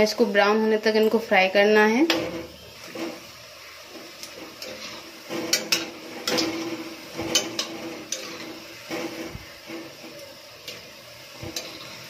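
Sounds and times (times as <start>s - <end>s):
deep-frying sizzle in oil: 0.0s - 12.0s
metal spoon clinking on pan: 4.2s - 8.6s, 10.6s - 12.0s.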